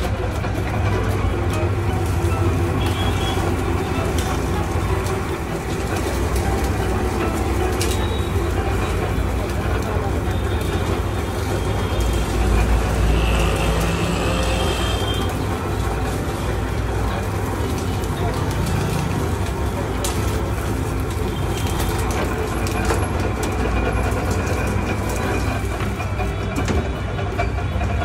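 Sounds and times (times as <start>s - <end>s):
cane stalks cracking: 0.0s - 26.9s
cane crusher running with hum: 0.0s - 28.0s.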